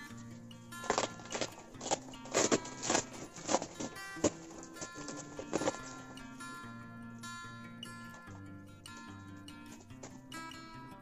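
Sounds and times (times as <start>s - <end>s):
background music with held notes: 0.0s - 11.0s
bubble wrap crackling: 0.8s - 6.3s.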